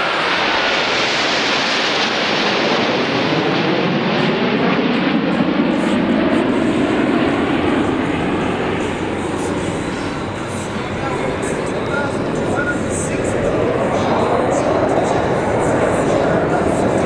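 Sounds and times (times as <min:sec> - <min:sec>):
jets passing overhead: 0:00.0 - 0:17.0.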